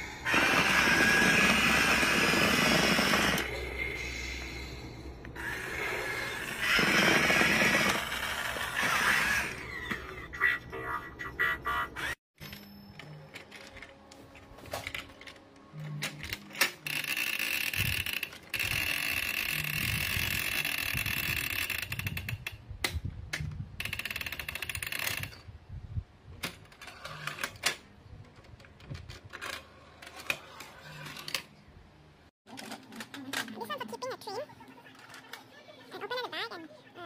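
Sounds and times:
toy train rattling on track: 0:16.8 - 0:22.5, 0:23.8 - 0:25.4.

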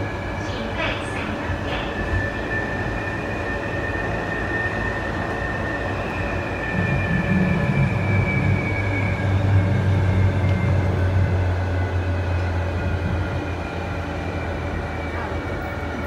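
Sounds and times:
train running noise: 0:00.0 - 0:16.0
low rumble: 0:06.0 - 0:14.9.

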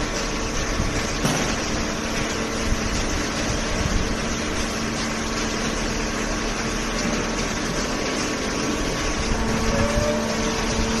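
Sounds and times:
baler and shredder machine running: 0:00.0 - 0:11.0.

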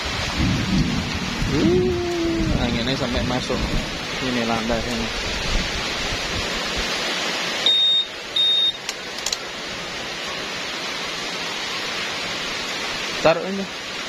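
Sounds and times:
rain hissing: 0:00.0 - 0:14.0
short high beeps: 0:07.7 - 0:08.8.

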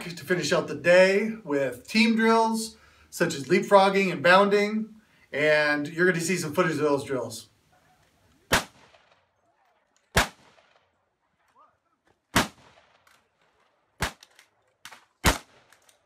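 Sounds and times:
rifle shots with echo: 0:08.5 - 0:11.0, 0:12.3 - 0:16.0.

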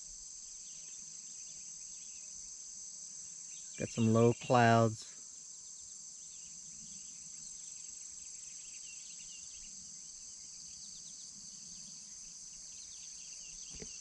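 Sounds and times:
crickets trilling: 0:00.0 - 0:14.0
faint bird chirps: 0:03.3 - 0:14.0.

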